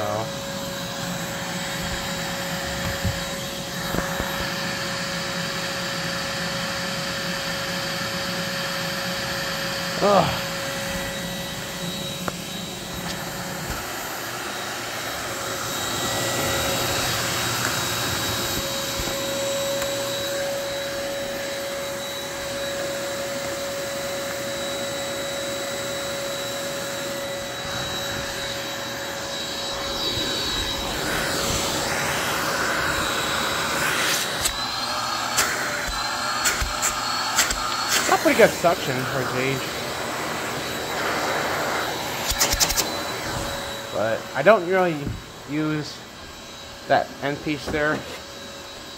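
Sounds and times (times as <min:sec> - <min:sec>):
vacuum cleaner motor whine: 0:00.0 - 0:48.9.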